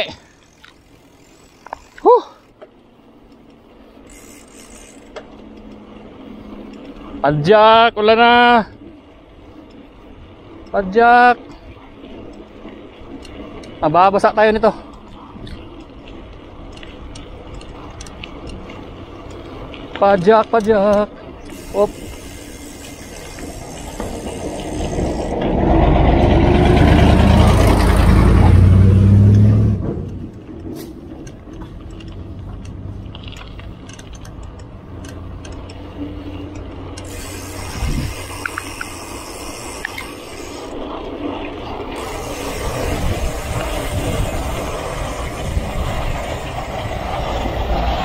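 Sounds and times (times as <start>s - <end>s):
vehicle engine rumble: 0.0s - 10.8s, 11.4s - 48.0s
bicycle rolling on concrete: 0.0s - 48.0s
wind on microphone: 37.1s - 39.0s, 39.9s - 48.0s.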